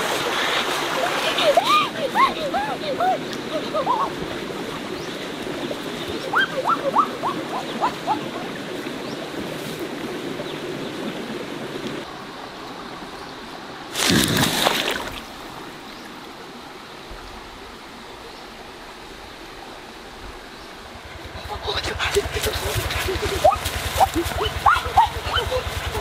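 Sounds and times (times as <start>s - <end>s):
river water flowing over rocks: 0.0s - 26.0s
rush of water: 0.0s - 26.0s.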